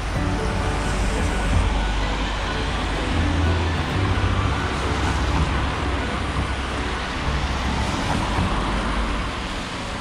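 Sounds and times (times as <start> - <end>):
cars passing on wet road: 0.0 - 10.0.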